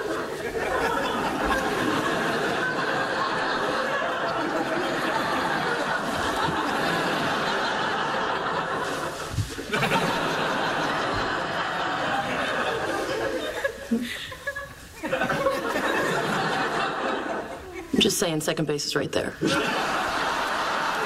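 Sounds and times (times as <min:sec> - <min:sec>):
studio audience laughing: 0:00.0 - 0:18.0, 0:19.4 - 0:21.0.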